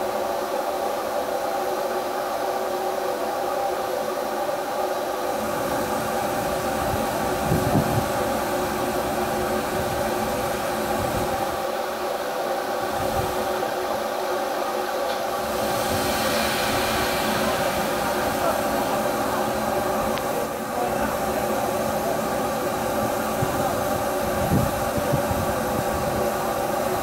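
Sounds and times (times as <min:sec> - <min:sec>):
steam hissing: 0:00.0 - 0:27.0
low hum: 0:15.2 - 0:21.3.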